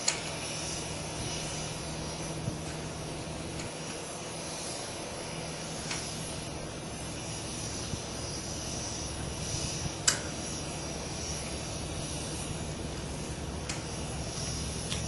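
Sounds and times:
sharp click: 0.0 - 0.3, 10.0 - 10.3
outdoor background rumble: 0.0 - 15.0.

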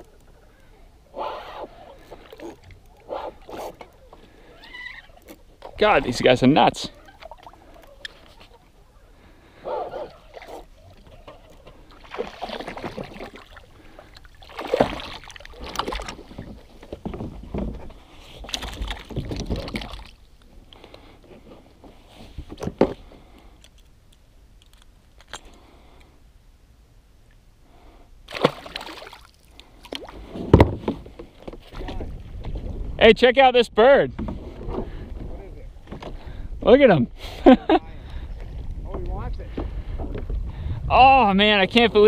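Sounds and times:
water splashing against kayak: 9.9 - 23.2, 28.3 - 33.0.

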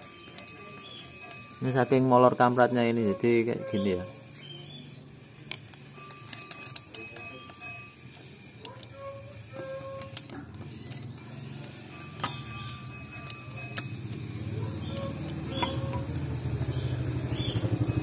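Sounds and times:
engine running with low pulsing: 8.4 - 18.0.

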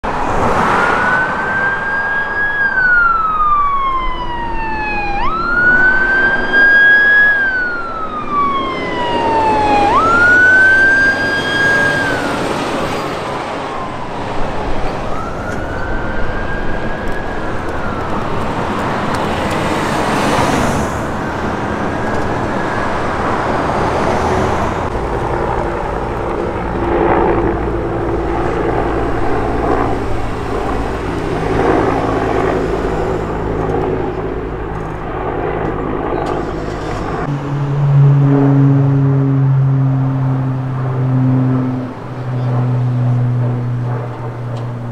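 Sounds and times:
heavy trucks passing: 0.0 - 44.9
helicopter drone: 0.1 - 44.9
siren wailing: 0.1 - 44.9.

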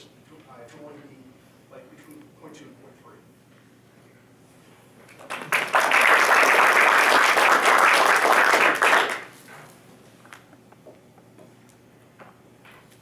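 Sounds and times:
audience applauding: 5.1 - 9.4.

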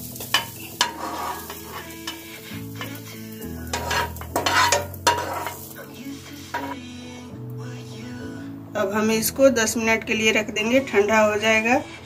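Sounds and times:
sizzling: 0.0 - 8.2
metal spatula scraping pan: 0.2 - 5.8, 6.4 - 6.8.

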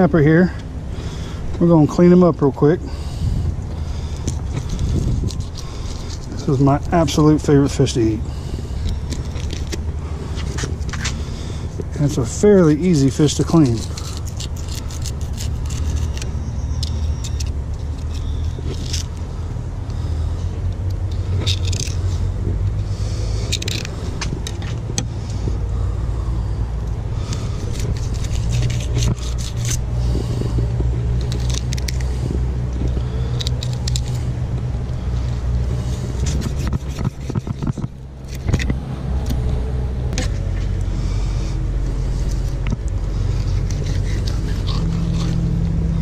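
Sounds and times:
low rumble: 2.8 - 46.0
knife scraping and slicing fish: 12.2 - 19.1, 27.2 - 34.4, 35.8 - 39.5, 41.9 - 45.9.

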